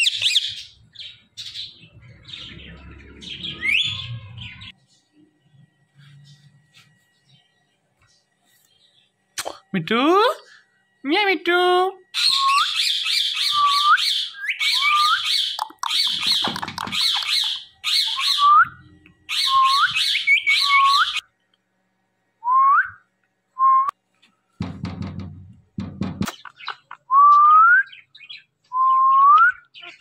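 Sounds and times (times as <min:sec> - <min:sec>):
parakeet chattering and whistling: 0:12.2 - 0:21.2, 0:26.3 - 0:28.4.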